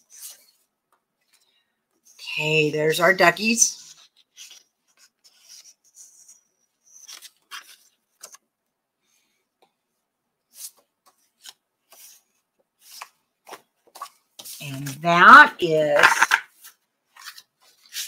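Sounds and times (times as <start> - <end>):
paper sheets rustling: 3.8 - 8.4, 10.5 - 15.1, 15.8 - 18.0.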